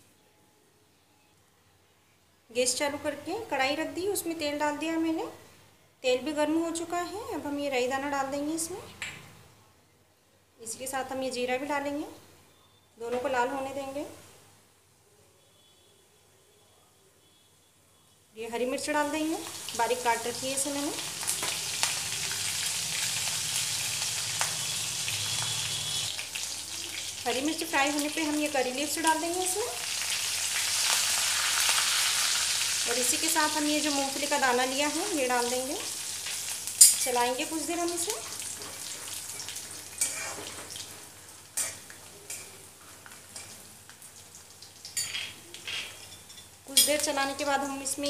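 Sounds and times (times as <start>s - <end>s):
chillies sizzling in hot oil: 18.6s - 48.0s.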